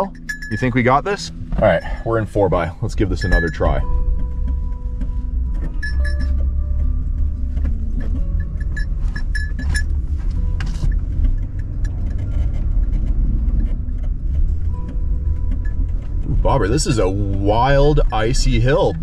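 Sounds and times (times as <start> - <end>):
loose objects jingling: 0.0 - 2.1, 2.8 - 4.4
truck engine rumbling: 0.0 - 19.0.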